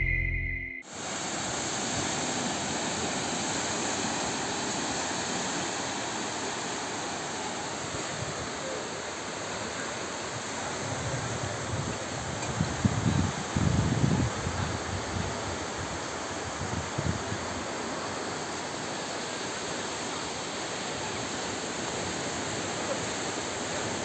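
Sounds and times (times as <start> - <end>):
sea waves breaking on beach: 0.9 - 11.6
wind buffeting microphone: 10.8 - 17.5.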